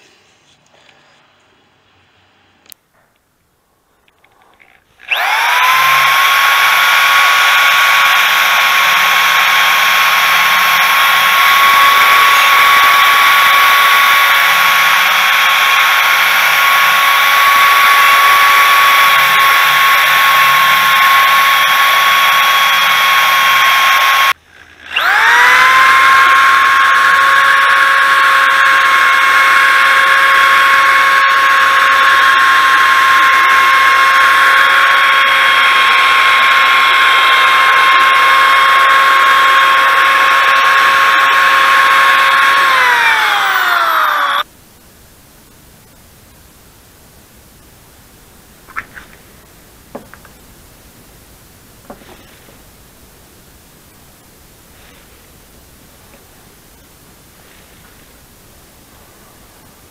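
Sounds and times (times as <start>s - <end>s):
die grinder wire wheel whine: 4.2s - 44.5s.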